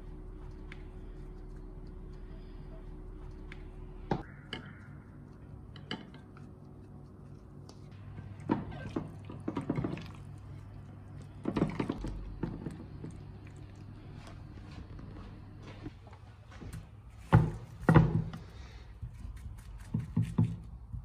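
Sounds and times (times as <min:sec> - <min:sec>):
low hum: 0:00.0 - 0:17.2.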